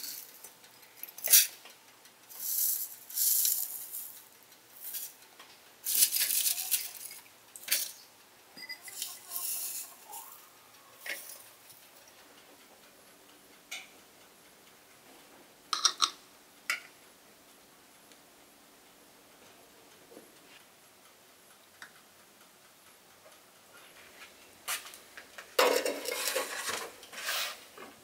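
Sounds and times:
dried herbs rustling: 2.3s - 5.2s, 5.8s - 8.0s, 8.8s - 10.4s, 11.0s - 11.5s
metal spoon clinking on saucer: 8.6s - 9.9s, 15.7s - 16.8s.

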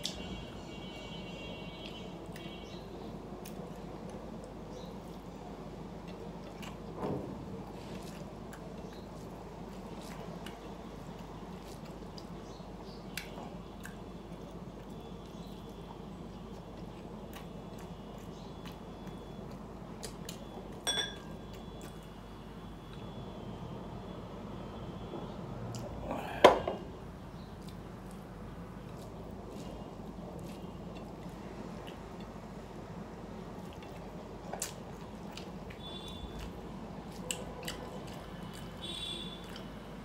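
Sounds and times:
soft squishing of food: 0.0s - 40.0s
quiet chewing: 1.7s - 23.1s, 27.2s - 40.0s
drinking glass clink: 20.9s - 21.4s.

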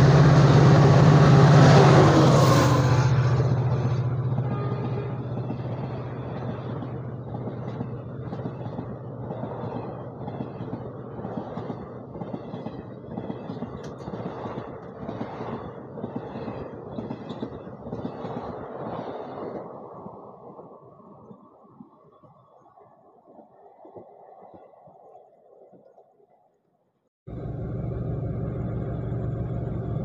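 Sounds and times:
train coaches rushing past: 0.0s - 20.5s.

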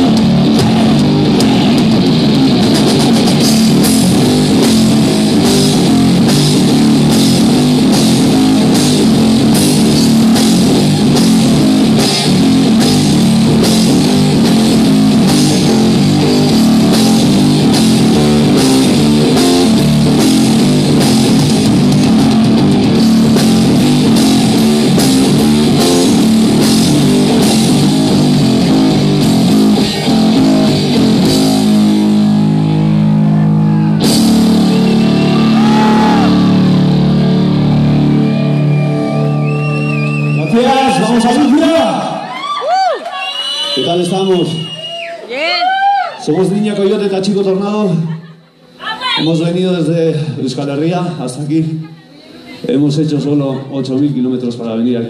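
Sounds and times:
drum kit and cymbals: 0.0s - 37.1s
electric guitar riffs: 0.0s - 42.8s.

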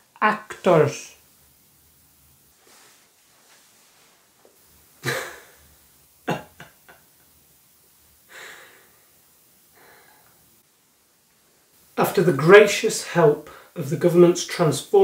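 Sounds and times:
man laughing: 5.0s - 5.6s, 6.2s - 7.2s.

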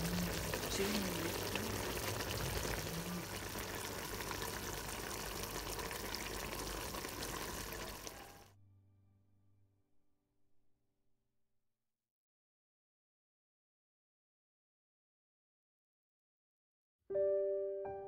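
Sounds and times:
wood fire crackling: 0.0s - 8.4s
pot bubbling: 0.0s - 8.5s.

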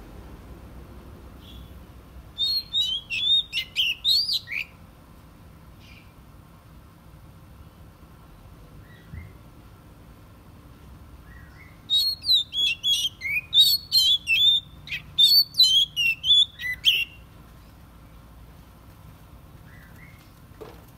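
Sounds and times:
bird singing whistled notes: 1.4s - 4.8s, 8.8s - 9.4s, 11.2s - 17.3s.

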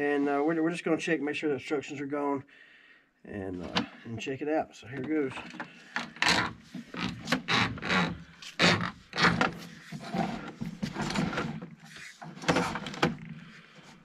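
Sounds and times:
cable scraping and knocking in pipe: 5.3s - 14.0s.

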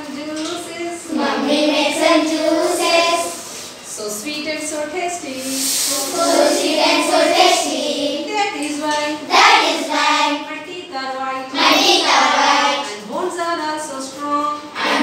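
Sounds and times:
children singing together: 1.1s - 3.6s, 5.8s - 8.3s, 9.2s - 10.4s, 11.5s - 13.0s, 14.8s - 15.0s.

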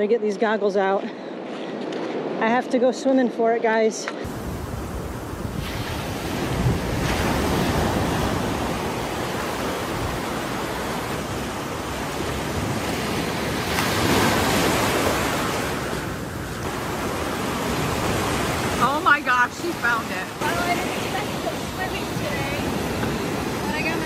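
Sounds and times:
ocean surf breaking: 4.2s - 24.0s
wind noise on microphone: 4.3s - 18.8s.

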